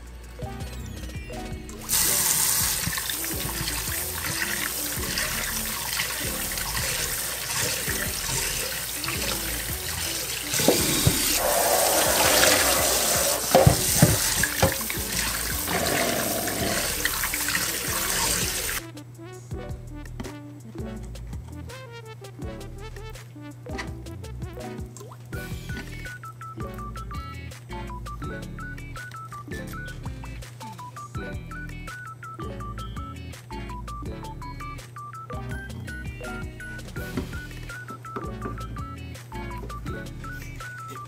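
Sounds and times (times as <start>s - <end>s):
tap water running into bowl: 1.9s - 18.8s.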